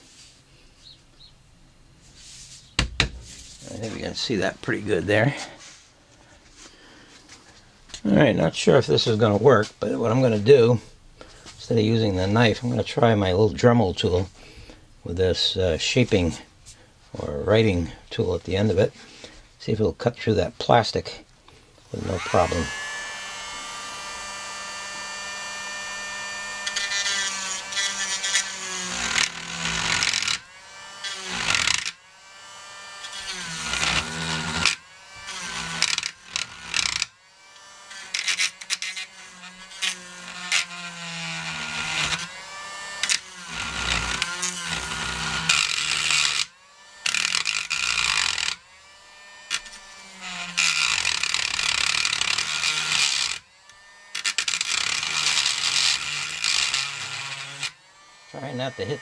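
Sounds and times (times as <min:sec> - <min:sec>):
rotary tool whining while cutting: 0:21.9 - 0:59.0.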